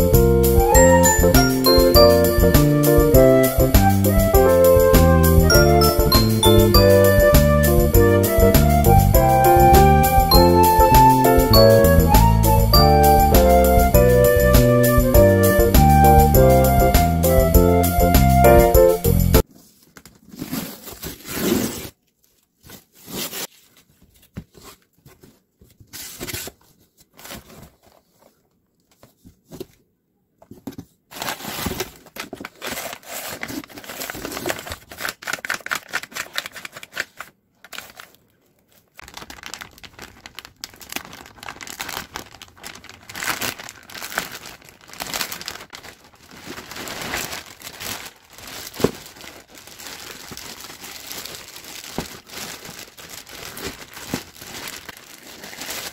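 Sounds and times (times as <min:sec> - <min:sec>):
cardboard rustling: 0:19.4 - 0:29.8, 0:30.4 - 0:55.9
packing tape tearing: 0:20.2 - 0:22.0, 0:31.1 - 0:38.2
plastic packaging crinkling: 0:31.1 - 0:55.9.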